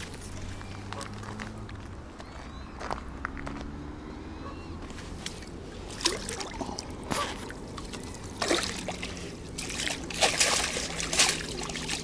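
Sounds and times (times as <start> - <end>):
water splashing and trickling: 5.2 - 12.0.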